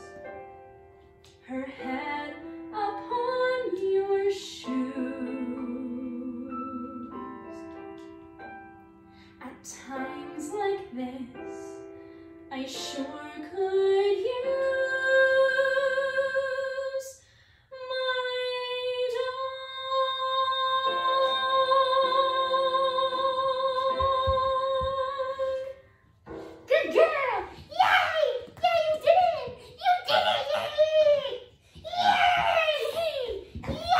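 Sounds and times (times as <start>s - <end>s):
woman singing: 1.4s - 7.4s, 12.5s - 17.2s, 17.8s - 25.8s.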